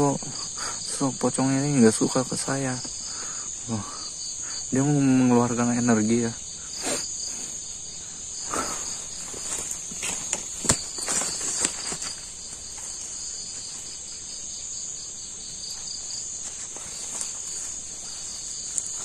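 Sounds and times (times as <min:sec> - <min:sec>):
crickets chirring: 0:00.0 - 0:19.0
fast pulsing insect trill: 0:00.0 - 0:19.0
rustling: 0:06.7 - 0:19.0.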